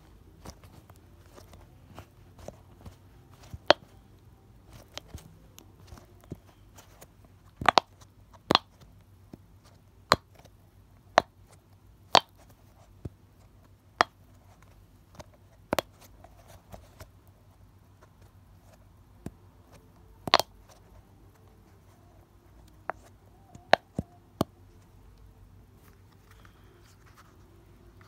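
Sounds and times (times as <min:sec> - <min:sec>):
fidget ball bubbles popping: 0:20.2 - 0:20.5.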